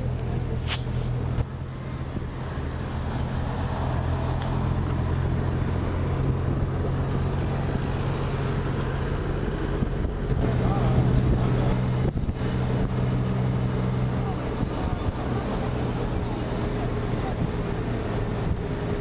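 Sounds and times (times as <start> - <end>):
road noise: 0.0 - 19.0
vehicle engine running: 0.0 - 19.0.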